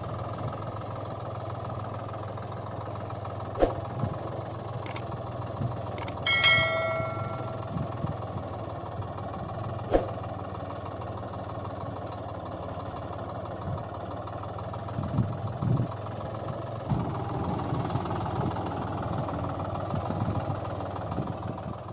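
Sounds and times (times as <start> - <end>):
engine idling: 0.0 - 21.9
short thumps: 3.6 - 3.9
sharp click: 6.0 - 7.6.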